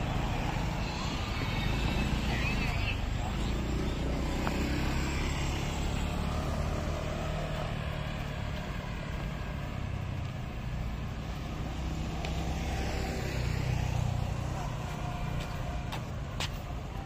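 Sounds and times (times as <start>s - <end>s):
vehicle engines rumbling: 0.0s - 17.0s.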